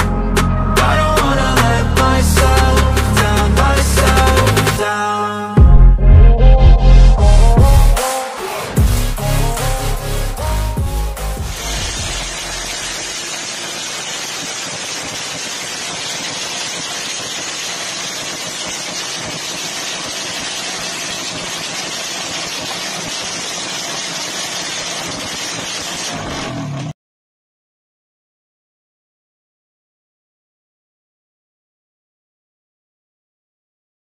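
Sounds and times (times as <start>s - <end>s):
motorcycle engine running: 8.8s - 26.9s.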